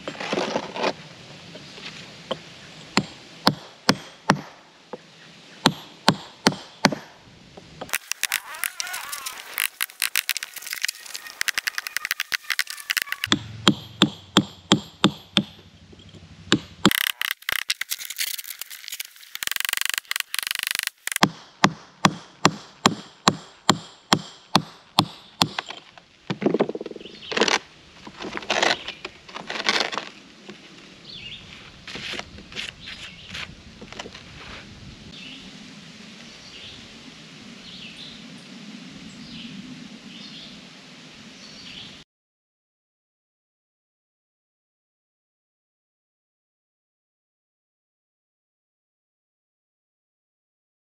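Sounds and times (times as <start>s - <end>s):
hammer striking chisel on stone: 13.3s - 15.6s.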